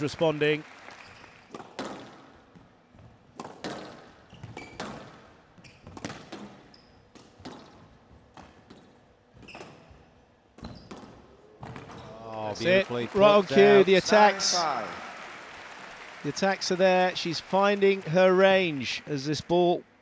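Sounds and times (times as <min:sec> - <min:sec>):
squash ball knocking off rackets and walls: 0:01.6 - 0:02.3, 0:03.4 - 0:08.8.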